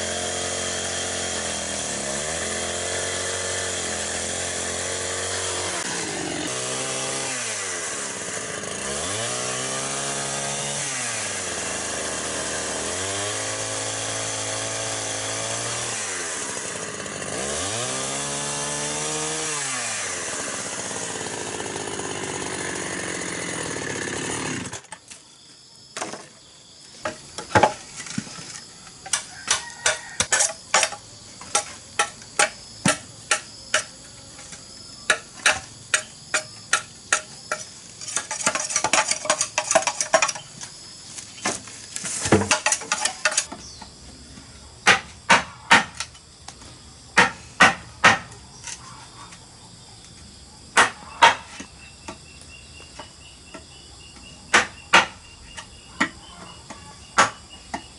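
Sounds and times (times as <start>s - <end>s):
chainsaw cutting bamboo: 0.0s - 25.2s, 27.0s - 43.8s, 44.8s - 46.3s, 47.2s - 48.8s, 54.5s - 57.5s
machete chopping bamboo: 29.0s - 40.7s, 41.4s - 43.6s, 44.8s - 46.2s, 47.2s - 48.8s, 50.8s - 52.2s, 54.5s - 56.6s, 57.2s - 57.9s.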